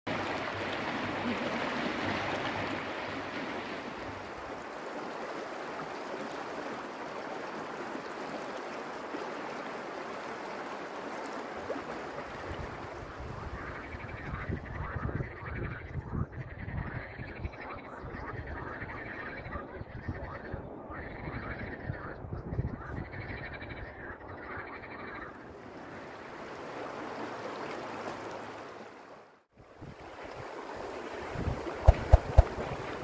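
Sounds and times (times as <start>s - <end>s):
river water rushing over rocks: 0.1s - 12.2s
frogs croaking: 13.0s - 29.1s.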